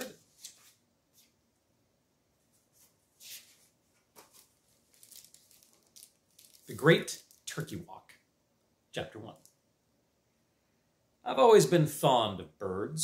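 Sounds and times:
book pages flipping: 0.0s - 1.3s, 2.5s - 7.6s.

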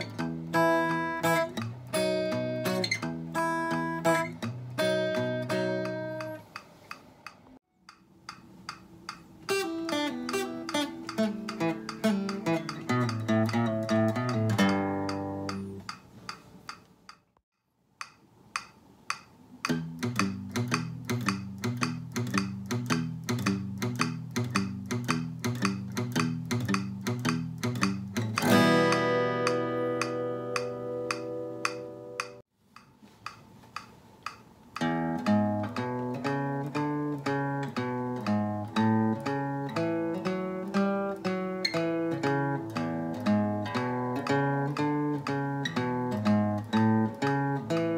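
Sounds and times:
acoustic guitar picked: 0.0s - 6.5s, 8.4s - 16.0s, 19.6s - 32.4s, 34.8s - 47.9s
steady ticking: 4.8s - 17.4s, 18.0s - 40.4s.

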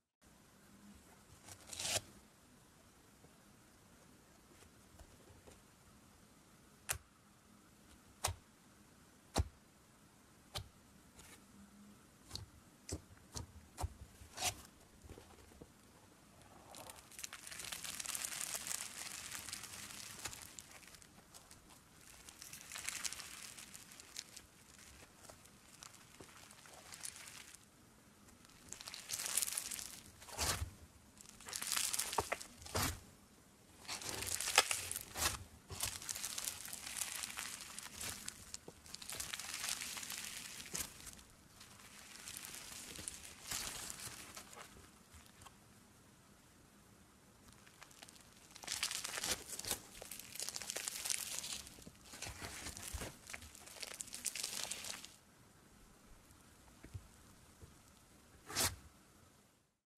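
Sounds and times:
slime squeezed crinkling: 16.5s - 27.6s, 28.4s - 30.6s, 31.2s - 33.0s, 33.8s - 45.4s, 47.5s - 55.2s.

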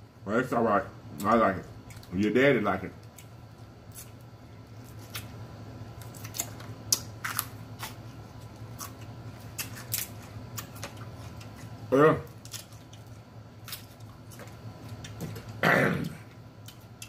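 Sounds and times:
crab shells cracking: 6.0s - 15.6s.

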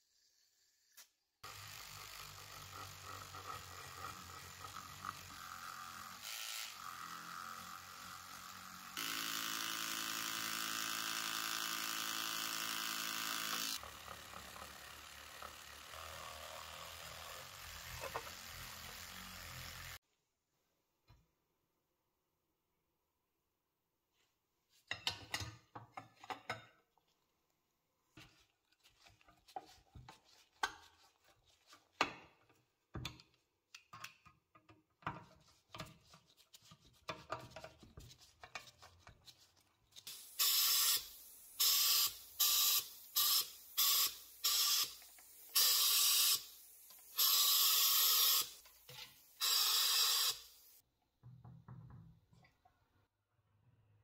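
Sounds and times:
spray can hisses: 40.1s - 50.8s.

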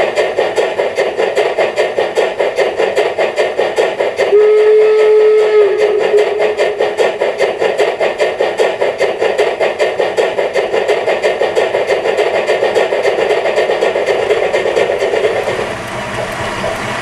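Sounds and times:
steam exhaust chuffs from loudspeaker: 4.2s - 7.2s.

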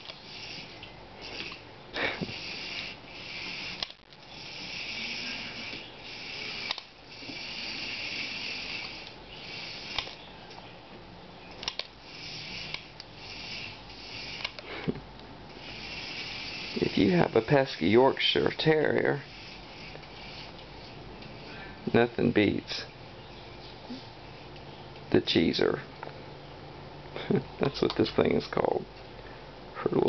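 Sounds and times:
small electric motor whirring: 0.0s - 10.3s, 11.6s - 14.7s, 15.5s - 21.5s.

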